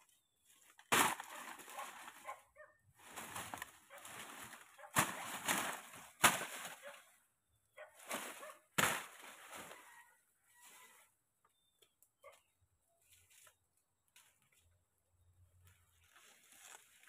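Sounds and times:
dry leaves rustling and crackling: 0:00.5 - 0:02.4, 0:03.0 - 0:07.0, 0:08.0 - 0:10.0, 0:15.9 - 0:17.0.

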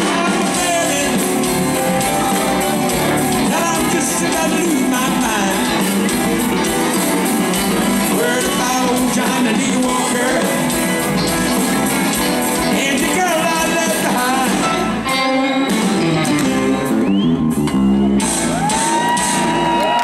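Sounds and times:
person singing: 0:00.0 - 0:17.0
live rock band playing: 0:00.0 - 0:20.0.

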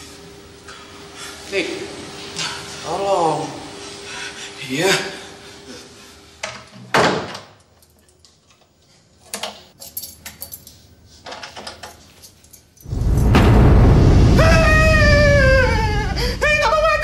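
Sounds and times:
loud low rumble: 0:12.9 - 0:17.0.

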